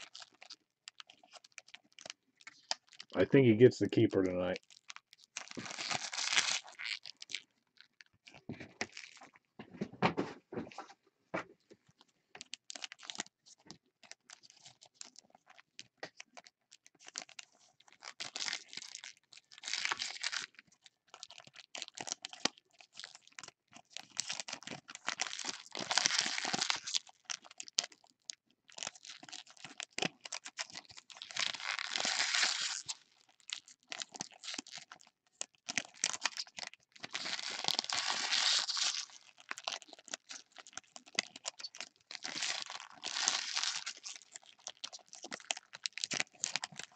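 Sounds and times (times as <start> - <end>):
foil packs crinkling: 4.0 - 7.4, 16.4 - 46.9
foil packs ripping: 5.4 - 7.2, 25.1 - 27.0, 31.2 - 33.0, 36.0 - 46.9.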